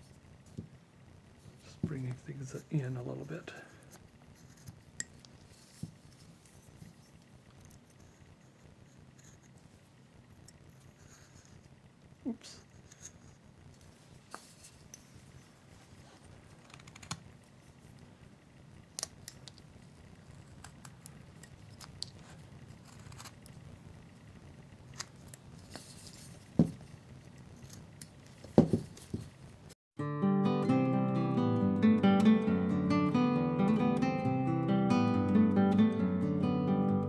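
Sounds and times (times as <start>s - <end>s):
knife carving and scraping wood: 4.3s - 9.6s, 20.4s - 23.5s
strummed acoustic guitar music: 30.0s - 37.0s.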